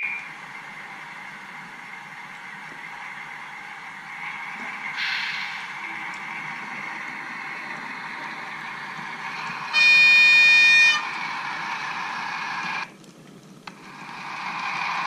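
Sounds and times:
model train running noise: 0.0s - 15.0s
model train horn: 9.7s - 11.2s.

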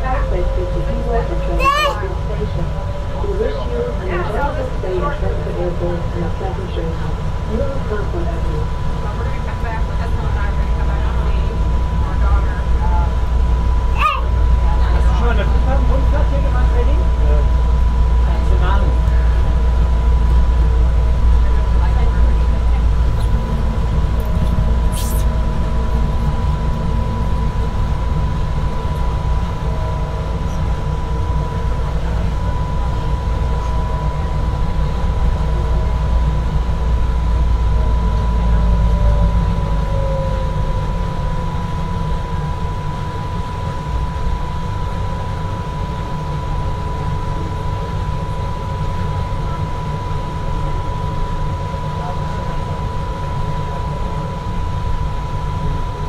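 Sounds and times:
high whine: 16.7s - 51.4s.

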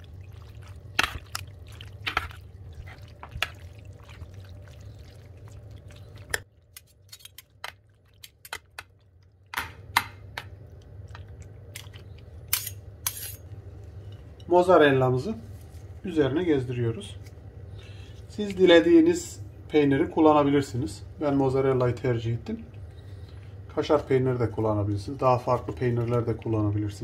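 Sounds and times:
pasta squelching: 0.0s - 9.5s.

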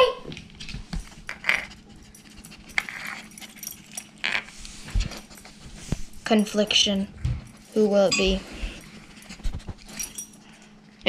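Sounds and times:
collar tags jingling: 2.0s - 4.2s, 6.3s - 10.8s.

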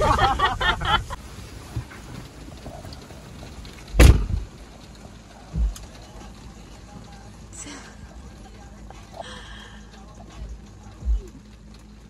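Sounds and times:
rain on a car roof: 0.0s - 12.0s
dull thump: 3.9s - 4.6s, 5.5s - 5.9s
sharp loud thump: 4.0s - 4.5s.

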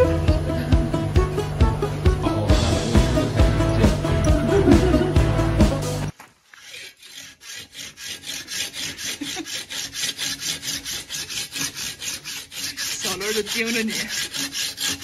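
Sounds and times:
hand saw rasping through wood: 6.5s - 15.0s.

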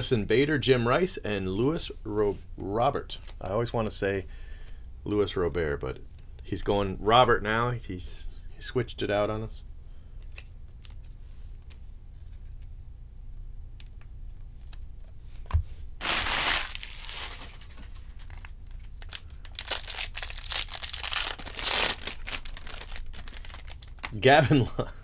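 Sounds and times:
foil wrapper tearing and crinkling: 16.0s - 24.3s.

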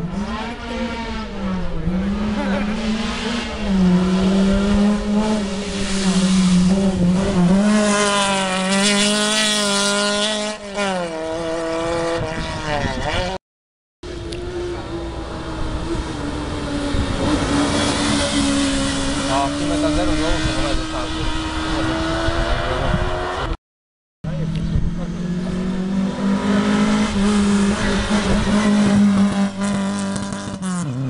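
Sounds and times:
rally car engine at high revs: 0.0s - 13.4s, 14.1s - 23.6s, 24.3s - 31.0s
car engine approaching: 14.0s - 23.6s, 24.2s - 31.0s.

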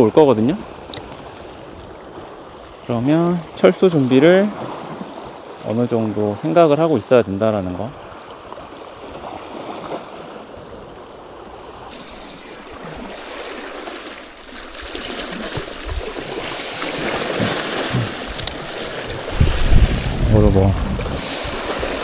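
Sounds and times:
waves splashing over rocks: 11.9s - 22.0s.

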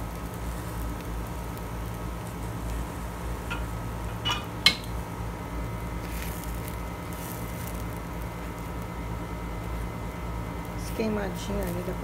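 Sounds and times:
low hum: 0.0s - 7.0s
utensil clinking against cookware: 3.5s - 4.9s.

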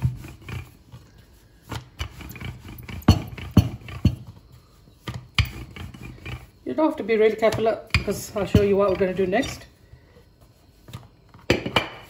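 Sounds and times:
rolling pin rolling dough: 0.0s - 12.0s
wood knocking on wood: 2.9s - 4.4s, 7.4s - 9.0s.

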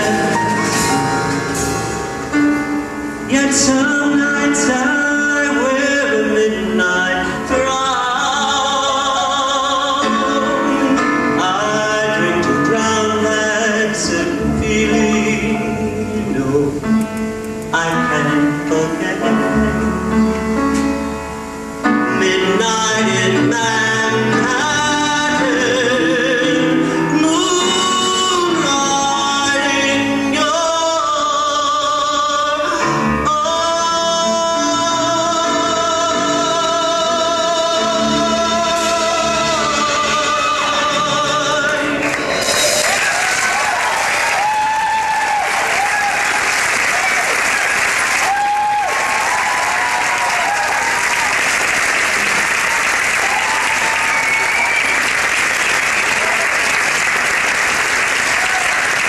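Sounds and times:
instrumental accompaniment: 0.0s - 31.3s, 32.8s - 44.4s
person singing: 3.2s - 20.7s, 21.8s - 45.8s.

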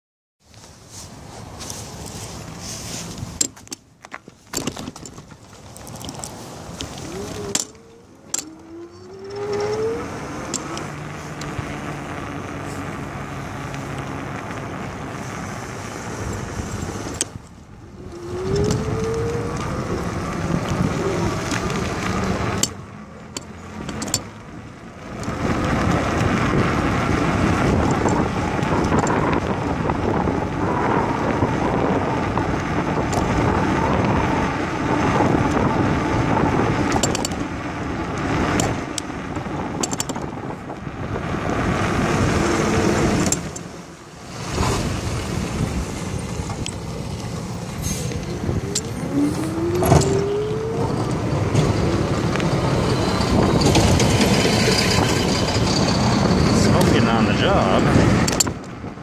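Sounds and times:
rolling and wind noise: 0.4s - 59.0s
short rising whines: 7.0s - 11.3s, 47.7s - 56.7s.

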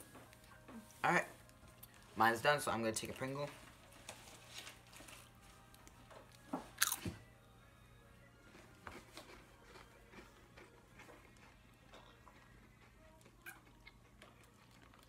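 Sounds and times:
faint music: 0.0s - 15.0s
chewing: 4.6s - 7.1s, 8.4s - 15.0s
potato chip crunching: 6.7s - 7.1s, 8.5s - 15.0s.

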